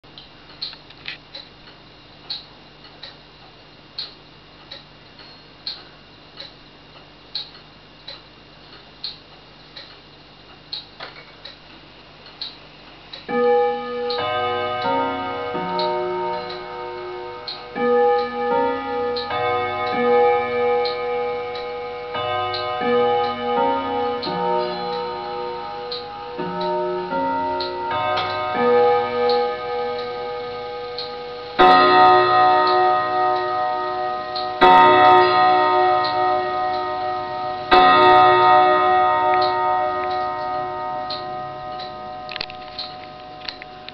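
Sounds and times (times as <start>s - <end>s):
pendulum clock ticking: 12.3s - 43.9s
clock strike: 12.4s - 43.9s
clock chime melody: 13.3s - 43.9s.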